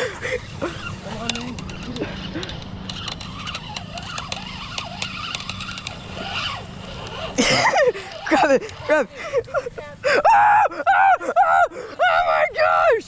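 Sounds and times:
steady low hum: 0.0 - 13.0
fishing reel clicking: 0.7 - 9.0.

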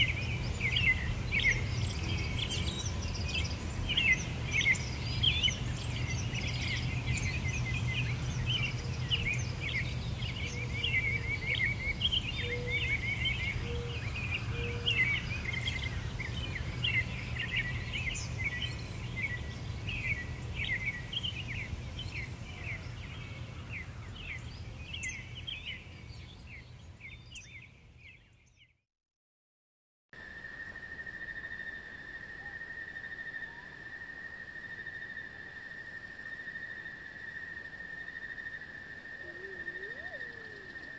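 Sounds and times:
birds chirping and trilling: 0.0 - 28.8, 31.0 - 40.9.

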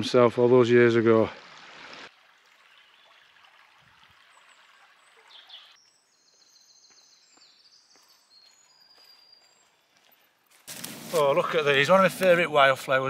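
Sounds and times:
stream trickling: 0.0 - 6.3
songbird singing: 4.2 - 10.5.

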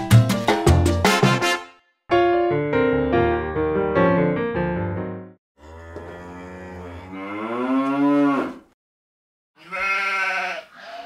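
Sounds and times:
cow mooing: 5.6 - 8.8, 9.6 - 11.0.

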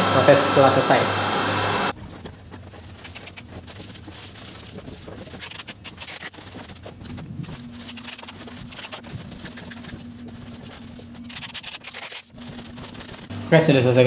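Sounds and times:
printer fan and motor hum: 0.0 - 2.4, 6.6 - 14.0
plastic wrap and cardboard rustling: 1.9 - 14.0.

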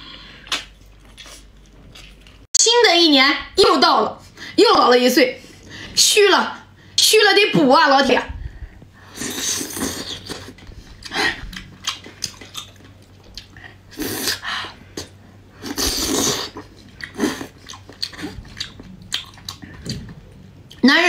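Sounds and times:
woman chewing food: 9.1 - 20.8.

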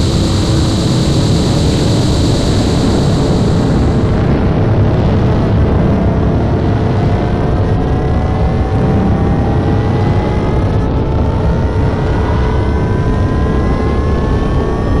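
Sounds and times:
thin rising whine: 0.0 - 4.8
rocket launch rumble: 0.0 - 12.0.

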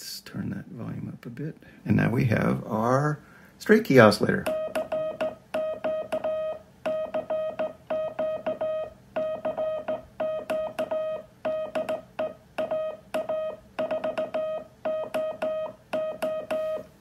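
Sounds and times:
morse code tone over speaker: 4.4 - 17.0
telegraph key clicks: 11.7 - 14.4.

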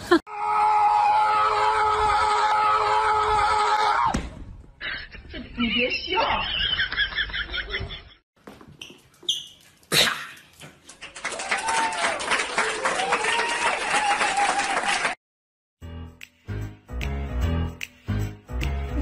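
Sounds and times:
short high squeaks: 8.8 - 9.8.

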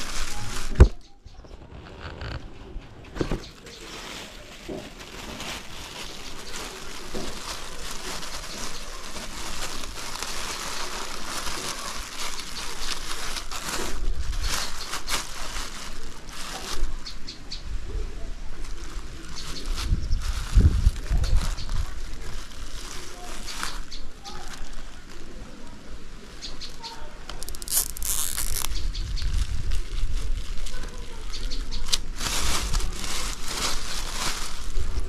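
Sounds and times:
plastic bag crinkling: 0.0 - 1.0, 1.9 - 17.0, 18.7 - 25.3, 27.3 - 35.0.

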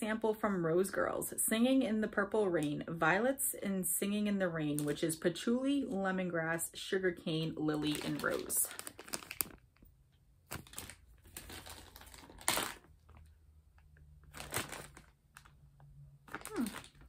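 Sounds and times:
plastic bag crinkling: 7.6 - 13.4, 14.1 - 17.0.

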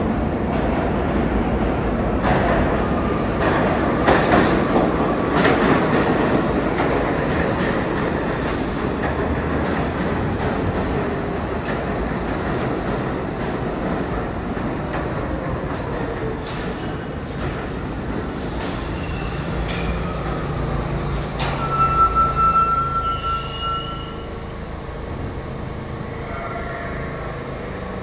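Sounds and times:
subway train rumbling and braking: 0.0 - 28.0
high brake squeal: 18.6 - 20.2, 21.4 - 24.5, 26.1 - 27.4.

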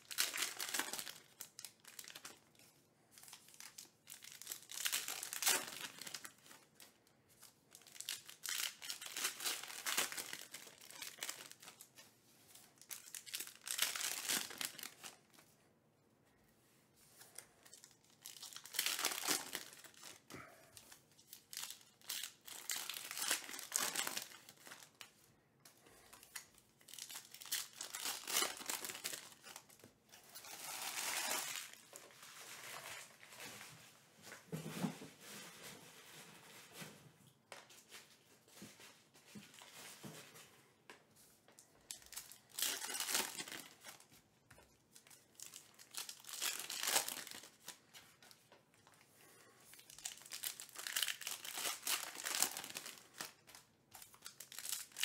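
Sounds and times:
foil wrappers tearing and crinkling: 0.0 - 2.6, 3.2 - 6.6, 7.7 - 11.9, 12.8 - 15.2, 17.8 - 20.2, 21.3 - 25.0, 26.3 - 33.2, 41.9 - 44.0, 45.0 - 48.1, 49.7 - 55.0.

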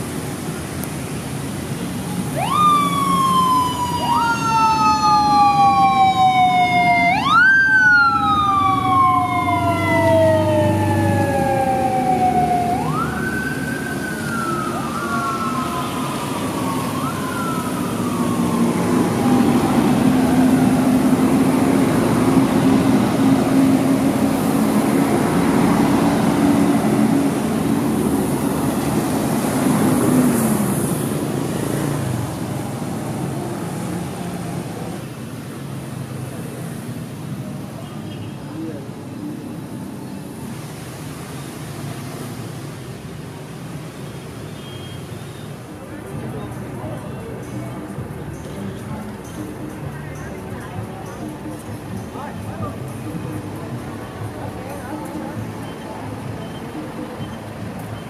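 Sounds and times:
traffic noise: 0.0 - 58.0
police siren wailing: 2.2 - 24.2.

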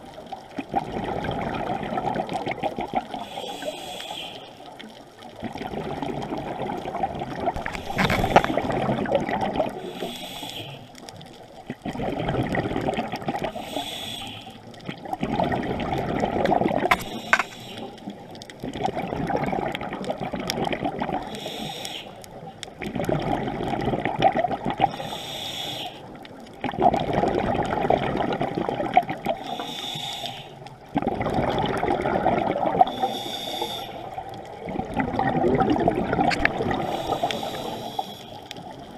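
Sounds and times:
bubbling on exhale: 0.6 - 38.9
regulator hiss on inhale: 3.2 - 4.8, 7.6 - 8.6, 9.8 - 11.1, 13.5 - 14.8, 16.9 - 18.2, 21.3 - 22.4, 24.9 - 26.2, 29.4 - 30.7, 32.9 - 34.2, 36.7 - 38.9.

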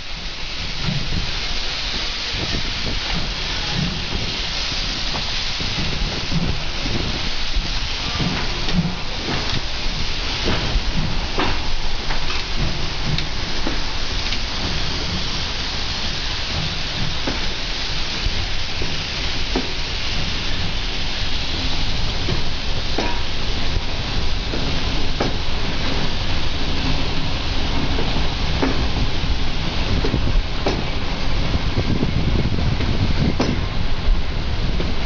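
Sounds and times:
steam locomotive hissing: 0.0 - 35.0
train coaches rolling past: 0.0 - 35.0.

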